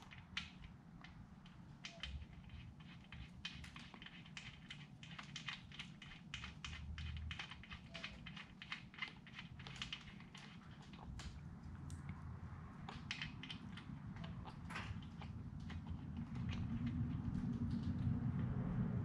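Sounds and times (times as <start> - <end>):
metal screw clicking under fingers: 0.0 - 18.0.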